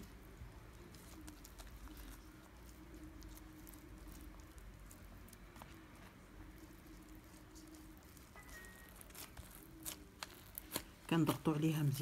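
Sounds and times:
faint steady hum: 0.0 - 12.0
pastry sheets crinkling: 0.0 - 12.0.

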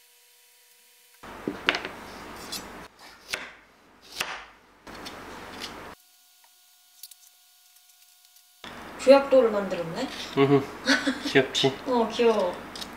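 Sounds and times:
peeler scraping carrot: 2.3 - 3.4.

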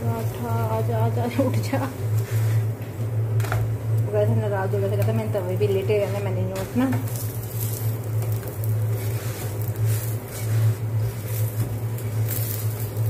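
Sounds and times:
flatbread cooking on hot pan: 0.0 - 13.0
steady low hum: 0.0 - 13.0
wooden tongs scraping: 5.2 - 13.0.

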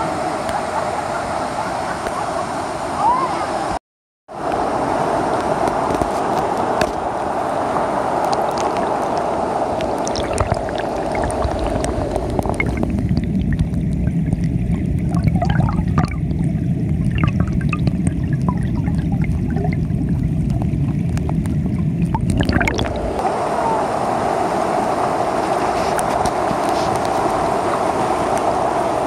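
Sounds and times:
stream rushing over rocks: 4.4 - 16.1, 20.6 - 29.0
bubbling clicks: 8.3 - 9.2, 9.8 - 23.2
muffled underwater rumble: 9.9 - 23.8.

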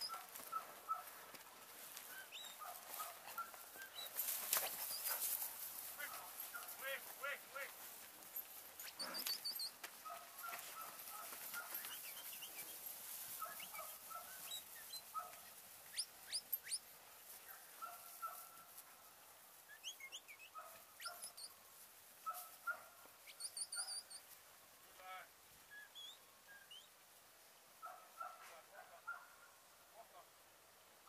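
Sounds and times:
birds chirping and calling: 8.4 - 16.9.

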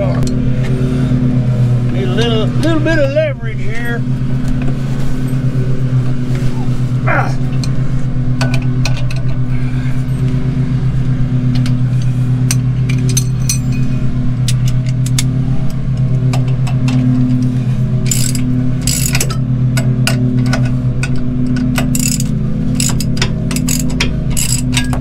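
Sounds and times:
lawn mower engine running: 0.0 - 25.0
wrenches clinking on metal: 11.6 - 15.3, 18.0 - 25.0
wrench ratcheting: 18.0 - 25.0.

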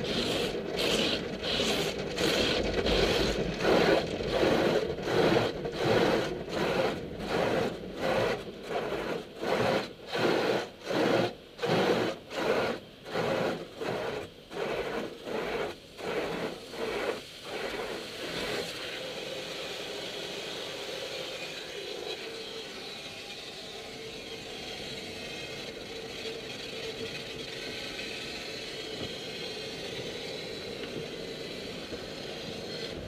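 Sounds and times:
car wash brushes swishing: 0.0 - 19.4
water spray hiss: 0.0 - 22.8.

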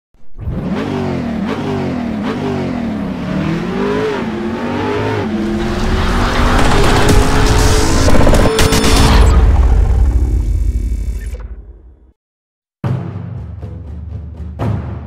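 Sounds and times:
car engine accelerating: 0.3 - 10.8.

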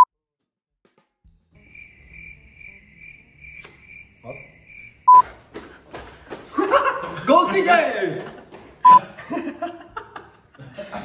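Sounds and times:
crickets chirping: 1.6 - 5.4.

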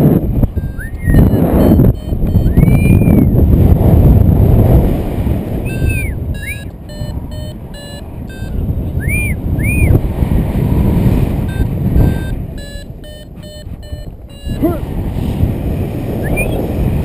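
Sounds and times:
wind buffeting microphone: 0.0 - 17.0
variometer beeping: 0.4 - 3.4, 5.6 - 10.0, 11.3 - 14.8
rising and falling chirps: 0.6 - 3.3, 5.7 - 10.0.

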